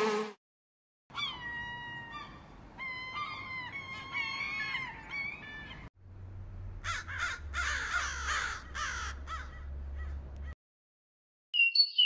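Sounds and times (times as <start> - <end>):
crows cawing: 6.8 - 10.2
songbird whistled notes: 11.6 - 12.0.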